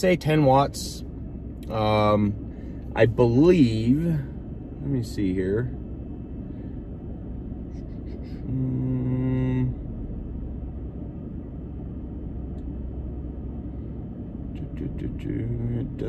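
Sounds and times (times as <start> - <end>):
vehicle cabin rumble: 0.0 - 16.0
man humming: 8.0 - 9.8.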